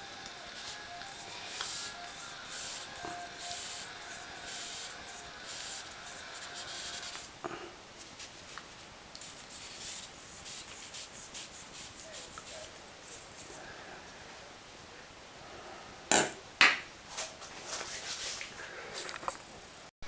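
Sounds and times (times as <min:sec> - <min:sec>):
paper napkin scratching plastic: 0:00.5 - 0:07.3, 0:09.2 - 0:13.2.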